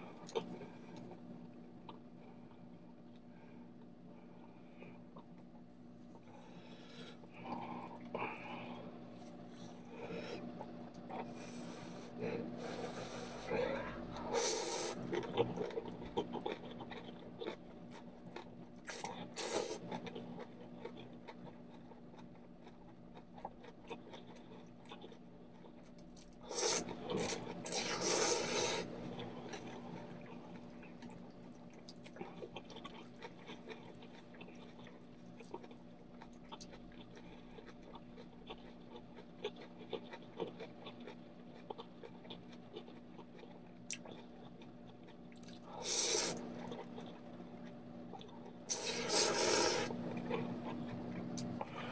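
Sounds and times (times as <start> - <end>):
chewing and mouth noises: 7.3 - 51.9
person slurping noodles: 26.4 - 28.9, 45.8 - 46.4, 48.7 - 50.0.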